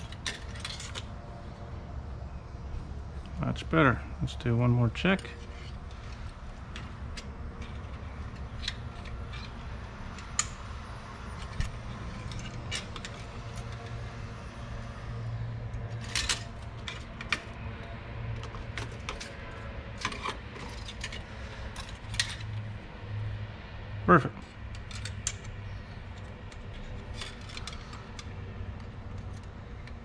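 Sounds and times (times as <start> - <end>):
low steady hum: 0.0 - 30.0
dipstick clicks and scrapes: 5.2 - 10.6.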